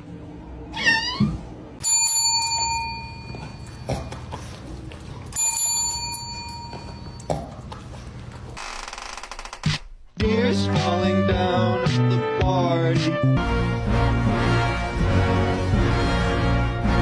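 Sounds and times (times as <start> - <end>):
service bell dinging: 1.8 - 3.9, 5.3 - 7.3.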